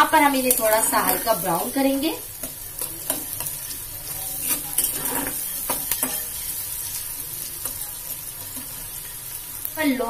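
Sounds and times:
vegetables sizzling in oil: 0.0 - 10.0
spatula scraping a steel pan: 2.4 - 7.0.

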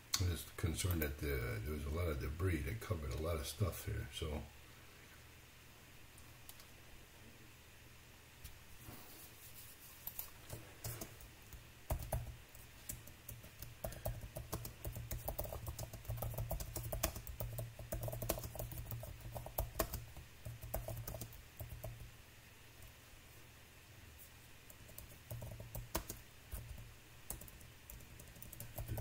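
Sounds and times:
computer keyboard typing: 11.9 - 22.1, 24.7 - 29.0.

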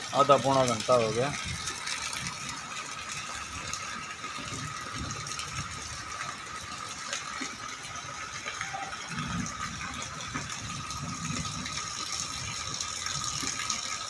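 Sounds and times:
heavy rain on wet paving: 0.0 - 14.0.

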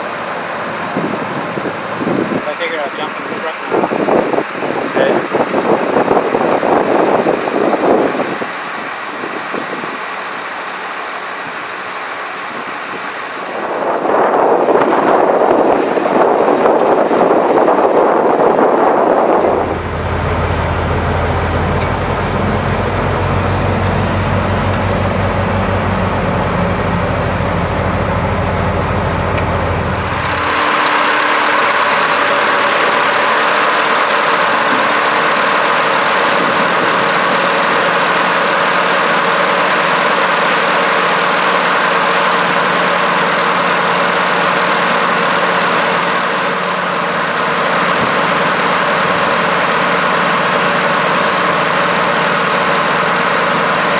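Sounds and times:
diesel truck engine idling: 0.0 - 53.9
hissing machine with high whine: 19.1 - 53.9.

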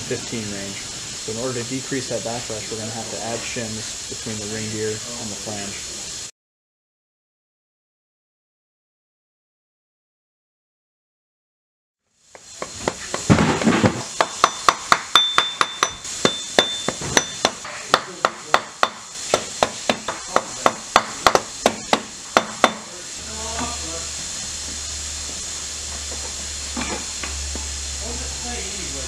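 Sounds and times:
steady low hum: 13.1 - 29.0
mallet tapping on metal: 14.2 - 22.9.

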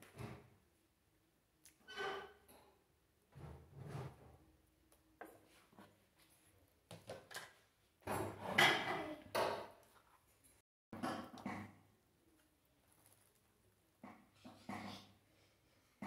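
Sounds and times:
dishes clattering: 8.1 - 9.8.

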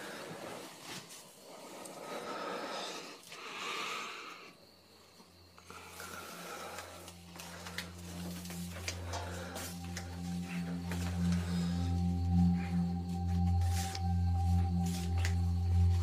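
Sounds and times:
man breathing heavily: 0.0 - 0.6, 1.4 - 4.6, 5.6 - 16.0
low music drone: 5.6 - 16.0.

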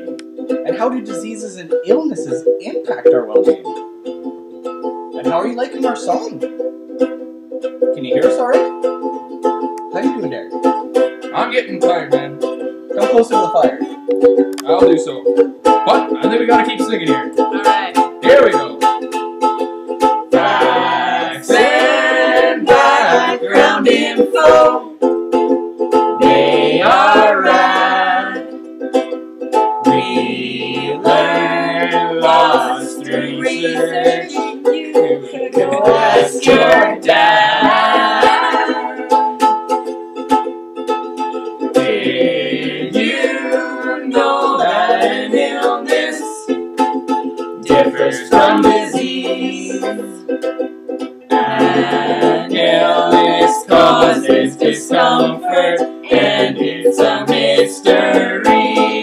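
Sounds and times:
ukulele strumming chords: 0.0 - 59.0
person singing: 20.3 - 24.9, 26.2 - 28.6, 29.9 - 39.4, 41.7 - 46.5, 47.6 - 50.4, 51.3 - 59.0.

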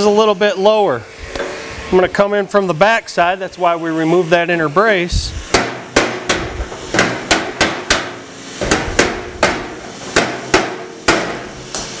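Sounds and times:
hammer tapping on steel panel: 5.6 - 11.9.

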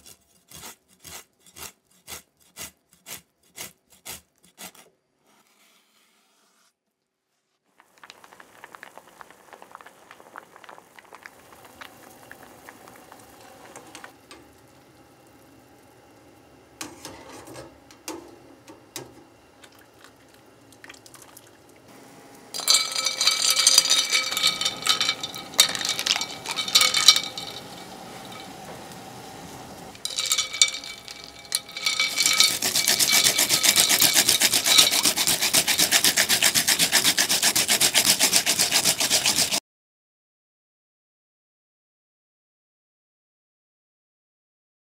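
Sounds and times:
root rasping on a grater: 0.0 - 6.6, 22.6 - 27.9, 30.0 - 39.6
wire strainer clinking in ice water: 22.6 - 28.7, 29.9 - 36.9.

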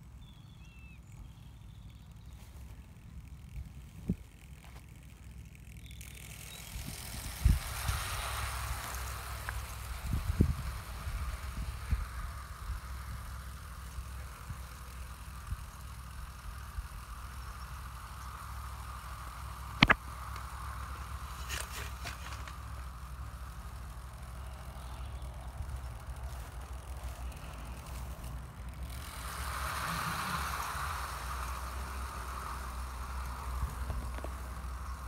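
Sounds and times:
model train motor whine: 0.0 - 35.0.

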